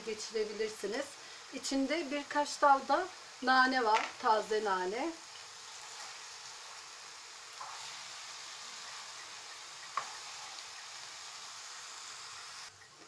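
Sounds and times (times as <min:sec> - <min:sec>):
meat sizzling in a frying pan: 0:00.0 - 0:12.8
spoon stirring in a pan: 0:05.3 - 0:06.9, 0:07.5 - 0:11.0.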